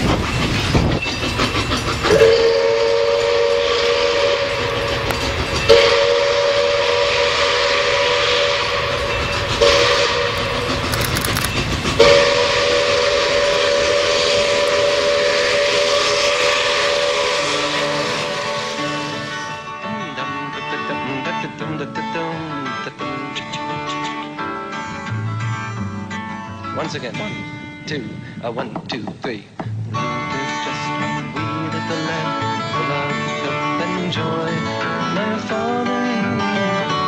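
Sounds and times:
train running noise: 0:00.0 - 0:37.0
train whistle long blasts: 0:02.0 - 0:19.9.

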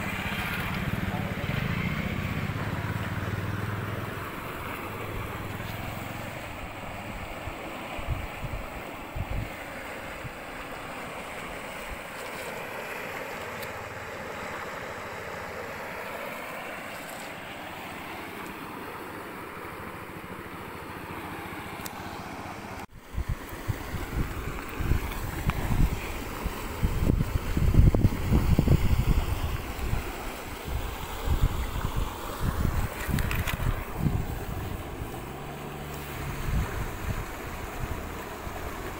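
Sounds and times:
rushing wind: 0:00.0 - 0:12.5, 0:22.9 - 0:38.9
wind gusts buffeting microphone: 0:06.6 - 0:10.4, 0:23.0 - 0:38.9.

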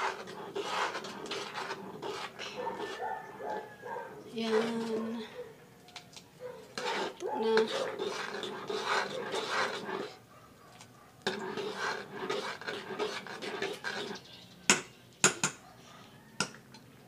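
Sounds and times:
metal ladle stirring in pot: 0:00.0 - 0:03.8, 0:04.4 - 0:05.1, 0:06.7 - 0:10.2, 0:10.8 - 0:14.3.

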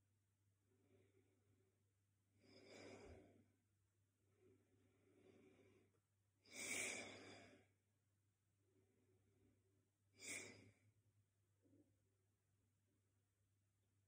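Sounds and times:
faint breathing: 0:02.4 - 0:03.5, 0:04.3 - 0:07.8, 0:10.2 - 0:10.8.

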